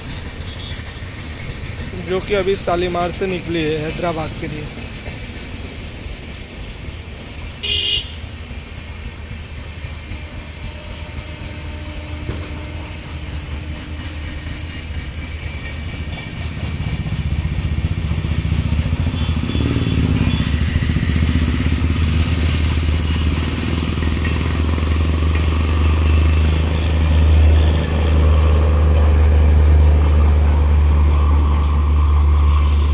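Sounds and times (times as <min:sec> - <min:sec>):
train rumbling past on rails: 0:00.0 - 0:32.9.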